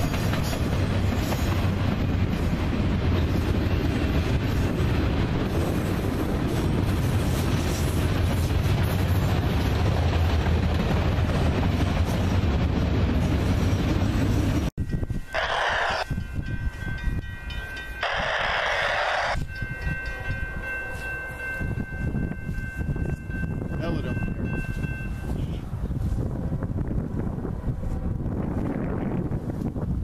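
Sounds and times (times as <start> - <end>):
train wheels rumbling on rail: 0.0 - 30.0.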